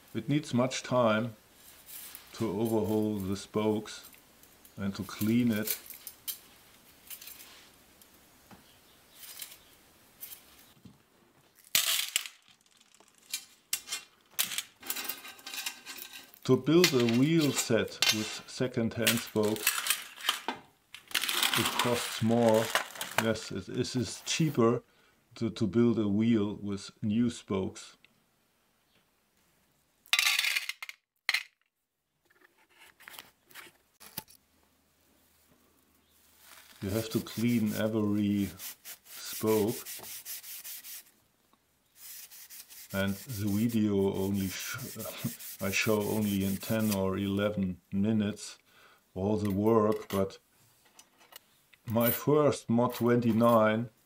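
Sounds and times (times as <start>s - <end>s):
metal parts clinking and rattling: 11.6s - 18.3s, 19.1s - 23.2s, 30.1s - 31.6s.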